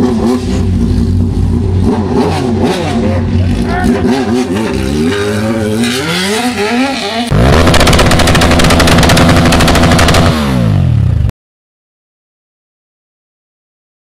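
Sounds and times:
motorcycle engine revving: 0:00.0 - 0:11.3
rapid rattling engine pops: 0:07.5 - 0:10.4.

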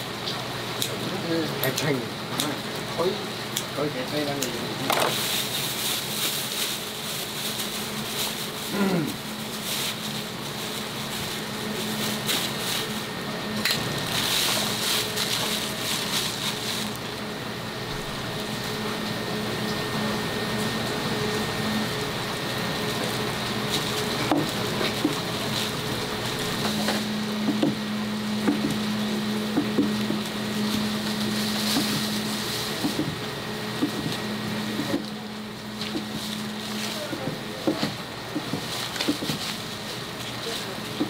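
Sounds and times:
steady low hum: 0:00.0 - 0:41.0
plastic bag crinkling: 0:05.0 - 0:13.1, 0:13.7 - 0:17.1, 0:30.5 - 0:32.8, 0:38.6 - 0:41.0.

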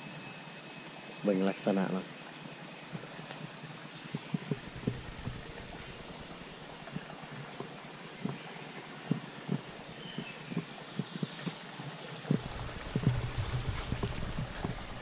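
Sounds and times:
steady hiss: 0:00.0 - 0:15.0
footsteps on forest path: 0:04.2 - 0:07.6, 0:12.3 - 0:15.0.

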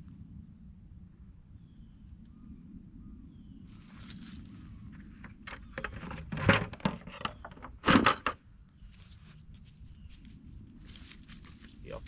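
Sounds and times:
plastic buckets knocking and rustling: 0:05.1 - 0:08.4.

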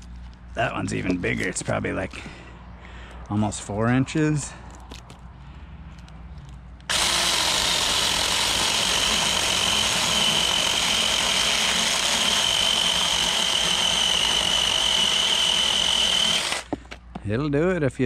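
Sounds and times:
electric chainsaw motor whine: 0:06.9 - 0:16.7.

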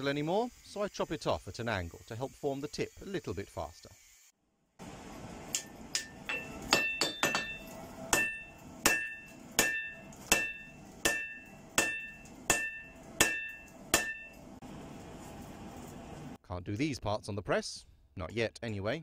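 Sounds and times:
hammer striking metal on anvil: 0:05.5 - 0:14.6.

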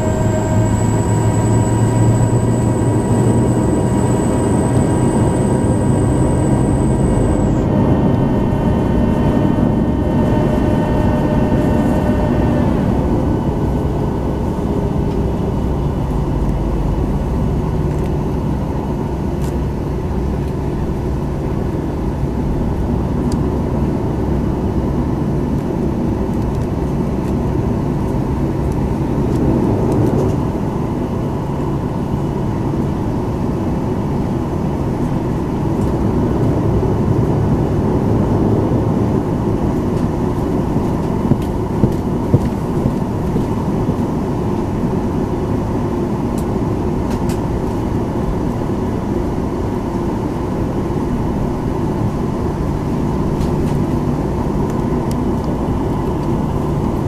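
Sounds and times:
high whining tones: 0:00.0 - 0:18.6
jet engines rumbling: 0:00.0 - 0:57.0.

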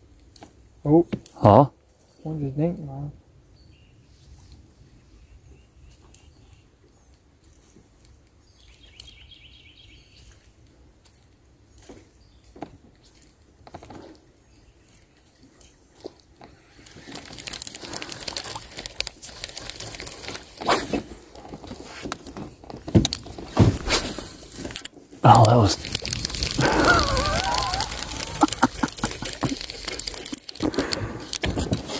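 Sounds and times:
fishing rod and reel handling: 0:16.4 - 0:23.3, 0:24.3 - 0:31.9
trilled bird call: 0:26.4 - 0:29.9.

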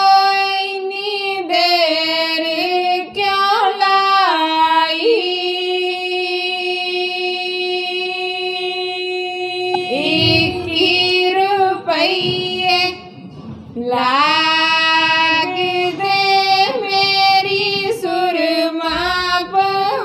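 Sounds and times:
woman singing a folk song: 0:13.8 - 0:20.0.

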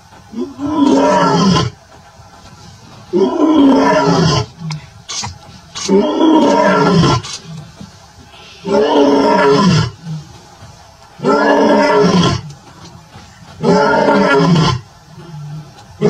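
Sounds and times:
lion roaring: 0:00.3 - 0:01.8, 0:03.1 - 0:05.2, 0:05.8 - 0:07.7, 0:08.5 - 0:10.5, 0:11.2 - 0:12.6, 0:13.6 - 0:16.0.

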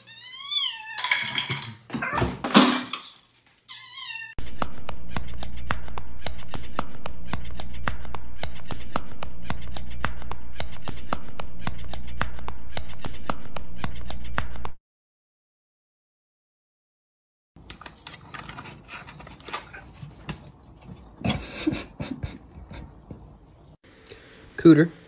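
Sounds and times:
cat meowing: 0:00.0 - 0:01.1, 0:03.7 - 0:04.4
steady low hum: 0:04.4 - 0:14.8.

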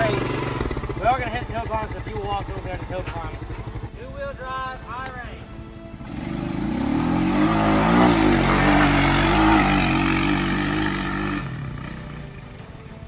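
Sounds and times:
atv engine revving hard: 0:00.0 - 0:01.7, 0:06.0 - 0:12.4.

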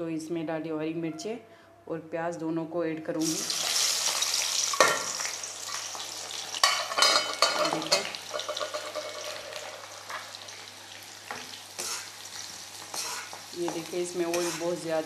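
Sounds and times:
food sizzling in hot oil: 0:03.2 - 0:15.0
sharp pops in frying oil: 0:04.7 - 0:05.8, 0:11.2 - 0:11.5.

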